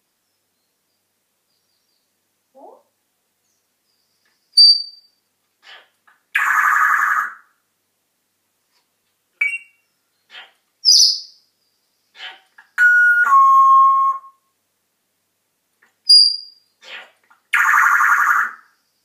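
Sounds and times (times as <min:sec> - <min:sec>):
parrot raspy call: 0:05.6 - 0:07.6, 0:10.3 - 0:11.1, 0:12.1 - 0:12.8, 0:16.8 - 0:18.7
parrot whistling: 0:09.4 - 0:09.8.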